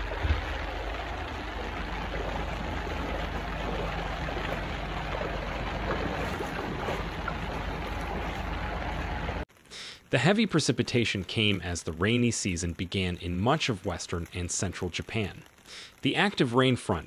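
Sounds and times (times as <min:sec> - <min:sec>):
floodwater rushing along street: 0:00.0 - 0:09.4.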